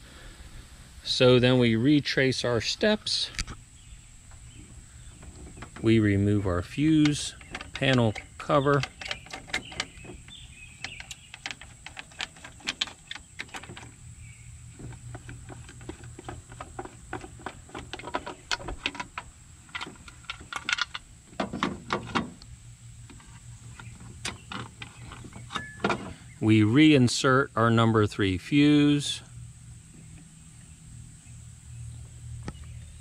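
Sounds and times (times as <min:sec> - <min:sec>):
knobs clicking and knocking: 0:05.2 - 0:14.0, 0:14.8 - 0:22.5.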